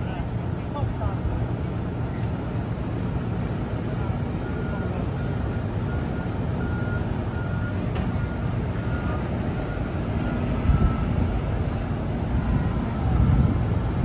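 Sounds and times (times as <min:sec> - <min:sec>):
forklift driving: 0:00.0 - 0:14.0
industrial machinery rumble: 0:00.0 - 0:14.0.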